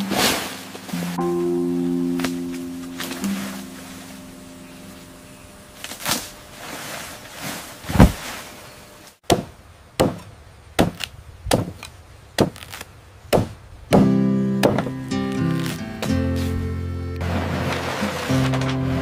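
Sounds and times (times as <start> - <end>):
chopping blows: 7.8 - 8.4, 9.2 - 18.9.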